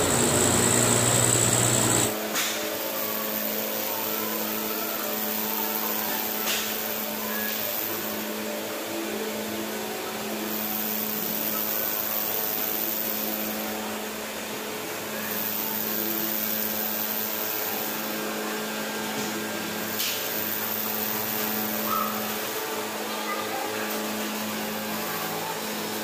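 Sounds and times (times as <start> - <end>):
machinery whirring: 0.0 - 2.2.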